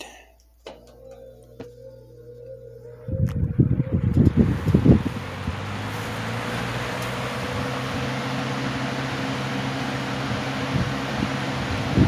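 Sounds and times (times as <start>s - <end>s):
box fan motor hum: 0.1s - 12.0s
air rushing from fan blades: 3.0s - 12.0s.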